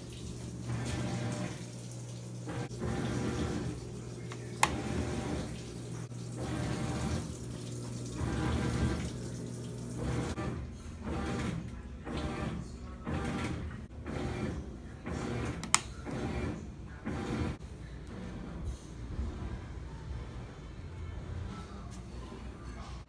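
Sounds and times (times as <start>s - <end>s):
water rushing into washing machine: 0.0s - 17.6s.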